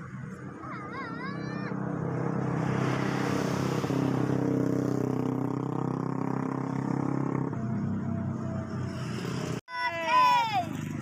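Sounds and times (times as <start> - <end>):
vehicle driving past: 1.5 - 9.6.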